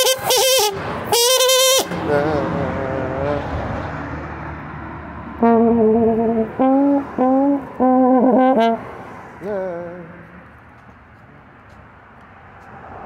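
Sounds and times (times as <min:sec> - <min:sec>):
slide trombone playing: 0:00.0 - 0:02.6, 0:05.4 - 0:09.0.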